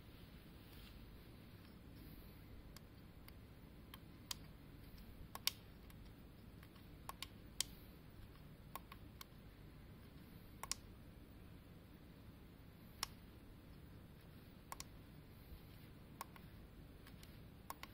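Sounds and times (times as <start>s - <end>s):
switches and buttons clicking: 2.7s - 9.4s, 10.0s - 10.9s, 14.6s - 15.0s, 16.1s - 17.9s.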